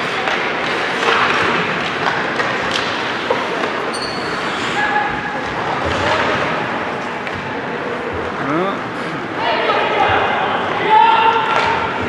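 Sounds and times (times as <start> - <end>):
hubbub of spectators: 0.0 - 12.0
short high squeaks: 3.9 - 4.8.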